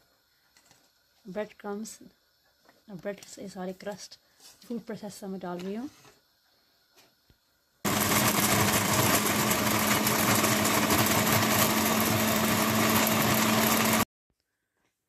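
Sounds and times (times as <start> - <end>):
blade grinding bread crusts: 7.9 - 14.0
food processor motor humming: 7.9 - 14.1.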